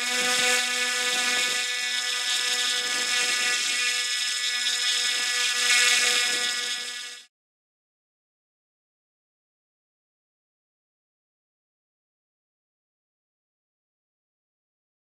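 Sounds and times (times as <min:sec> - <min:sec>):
electric motor and propeller whine: 0:00.0 - 0:07.3.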